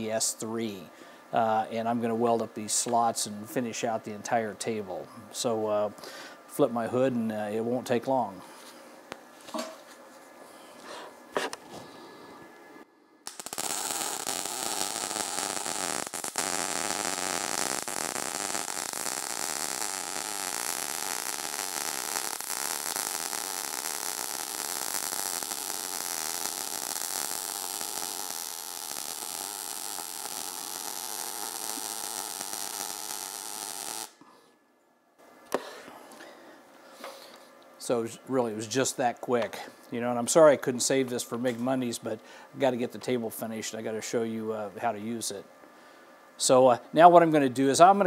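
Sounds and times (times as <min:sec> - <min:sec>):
welding arc buzzing: 0:13.2 - 0:34.2.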